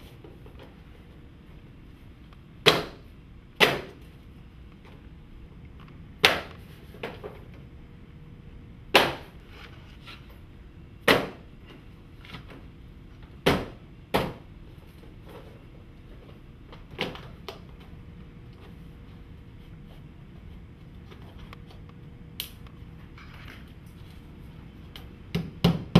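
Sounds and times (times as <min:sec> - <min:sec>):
sharp knocks on cladding panels: 0:02.6 - 0:03.0, 0:03.6 - 0:04.0, 0:08.9 - 0:09.3, 0:11.0 - 0:11.4, 0:13.4 - 0:14.5, 0:25.3 - 0:25.9.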